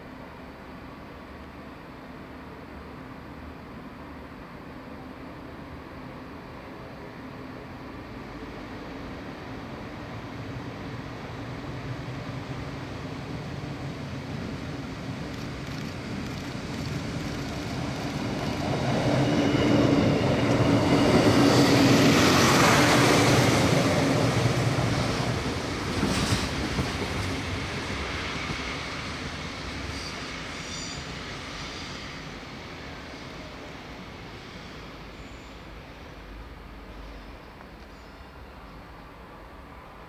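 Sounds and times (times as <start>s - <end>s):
diesel train engine hum: 0.0s - 40.0s
rail noise: 0.0s - 40.0s
high wheel squeal: 29.8s - 32.0s.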